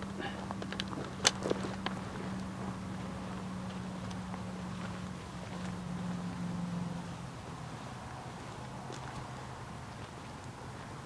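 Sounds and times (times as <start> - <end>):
faint footsteps on dirt trail: 0.0 - 11.0
steady low hum: 0.0 - 11.0.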